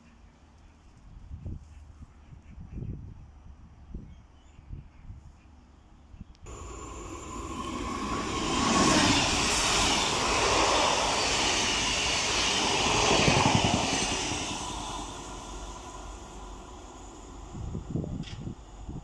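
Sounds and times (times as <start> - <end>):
train passing: 6.5 - 19.0.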